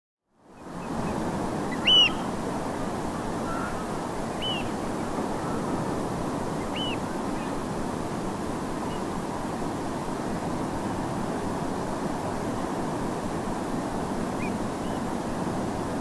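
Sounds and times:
distant surf: 0:00.5 - 0:16.0
bird piping calls: 0:00.8 - 0:02.4, 0:03.4 - 0:05.8, 0:06.6 - 0:07.5.

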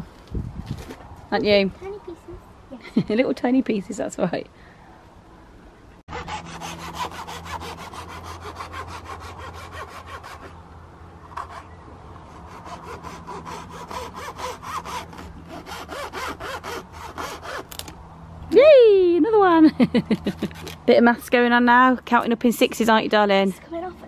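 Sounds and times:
hand saw cutting wood: 0:06.1 - 0:10.6, 0:11.3 - 0:11.7, 0:12.3 - 0:18.0.

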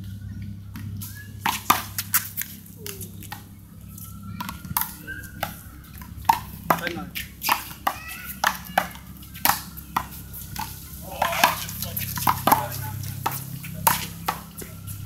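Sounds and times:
handball smacking off concrete wall: 0:00.8 - 0:02.2, 0:04.4 - 0:14.7.

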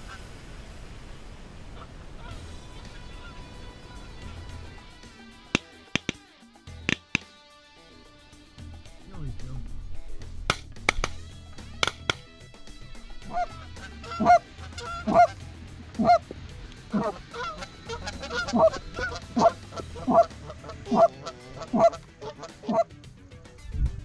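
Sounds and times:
goose honking: 0:13.2 - 0:15.4, 0:16.0 - 0:16.3, 0:16.9 - 0:22.9.

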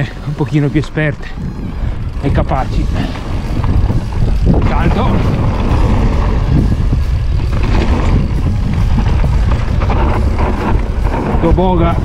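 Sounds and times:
bike rattling over stones: 0:00.0 - 0:12.0
wind buffeting microphone: 0:00.0 - 0:12.0
tyres crunching on gravel: 0:02.2 - 0:12.0.

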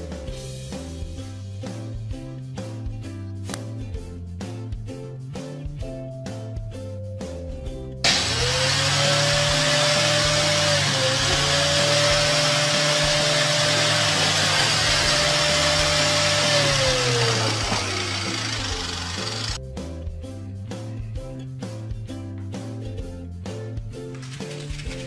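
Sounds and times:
vacuum cleaner motor whine: 0:08.1 - 0:19.6.

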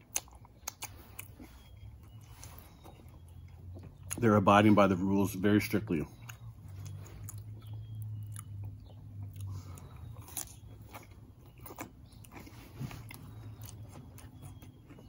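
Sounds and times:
chewing and crunching food: 0:00.0 - 0:15.0
wet mouth clicks: 0:00.1 - 0:01.3.

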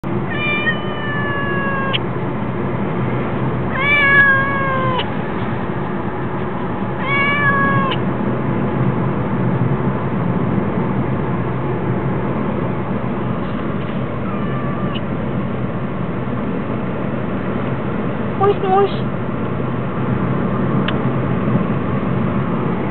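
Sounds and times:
cat meowing: 0:00.2 - 0:02.0, 0:03.7 - 0:05.1, 0:07.0 - 0:08.0, 0:14.2 - 0:15.1.

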